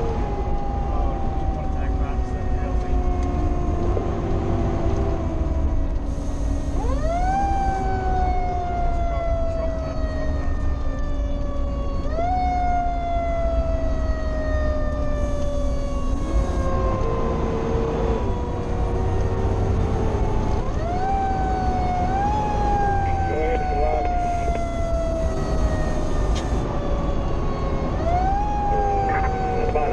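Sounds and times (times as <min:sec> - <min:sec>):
truck engine and road rumble: 0:00.0 - 0:29.9.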